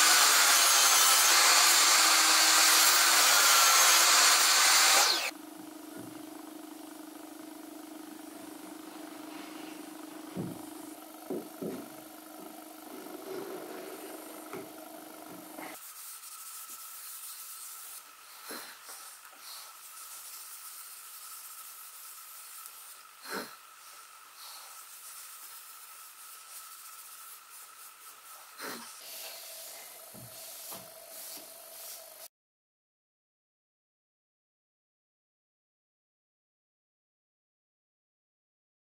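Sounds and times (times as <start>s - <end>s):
cloth rubbing wood: 12.9s - 14.3s.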